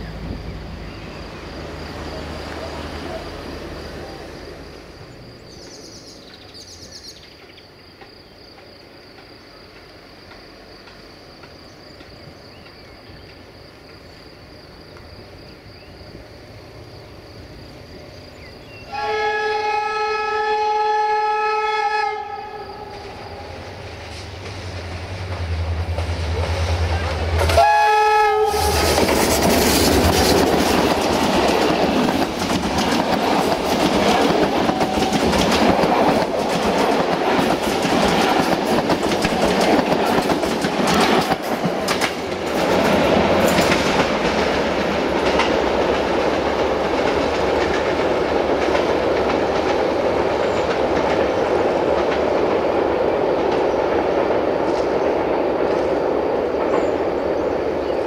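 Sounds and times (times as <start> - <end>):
train rumble: 0.0 - 58.0
train wheels clattering over rail joints: 7.9 - 14.2, 28.5 - 57.0.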